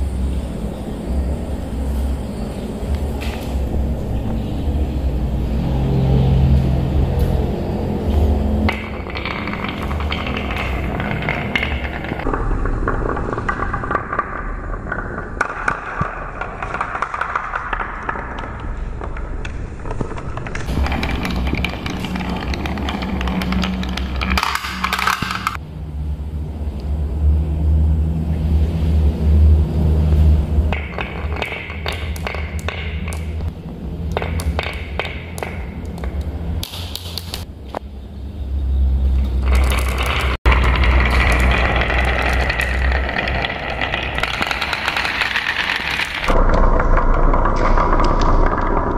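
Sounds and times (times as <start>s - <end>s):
marbles rolling on wood: 0.0s - 25.6s, 29.4s - 37.8s, 39.1s - 48.9s
marbles clicking and knocking: 7.0s - 25.6s, 30.2s - 37.5s, 39.1s - 48.9s
marbles in plastic spiral: 8.6s - 25.6s, 30.6s - 37.4s, 39.2s - 48.9s.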